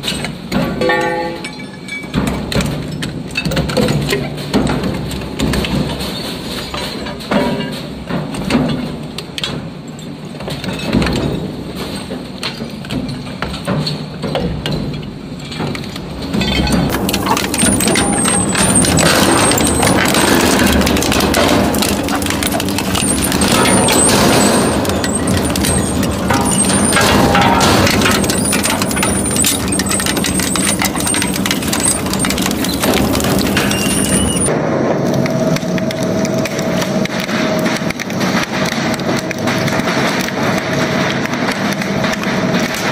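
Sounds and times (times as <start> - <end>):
shredder grinding metal: 16.9 - 34.5
sharp metal cracks: 16.9 - 42.9.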